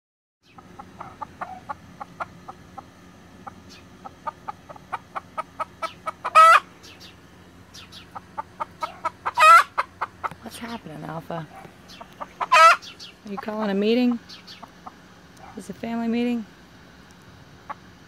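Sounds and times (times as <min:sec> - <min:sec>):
chickens alarm clucking: 0:00.4 - 0:15.7, 0:17.4 - 0:18.0
chicken squawks: 0:00.5 - 0:07.1, 0:07.8 - 0:10.3, 0:11.5 - 0:13.1.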